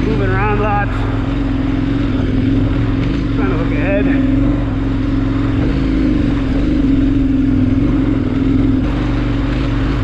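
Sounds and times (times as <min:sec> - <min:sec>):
motorcycle engine at low revs: 0:00.0 - 0:10.0.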